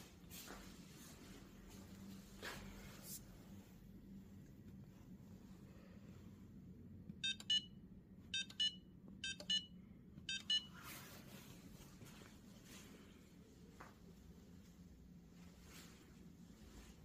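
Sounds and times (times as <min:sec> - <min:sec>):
control panel double beeps: 0:07.2 - 0:07.7, 0:08.4 - 0:09.7, 0:10.3 - 0:10.7.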